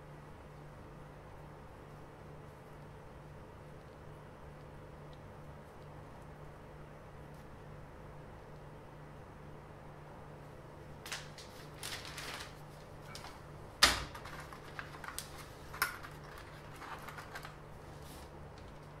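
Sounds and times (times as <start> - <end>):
paper rustling: 11.0 - 19.0.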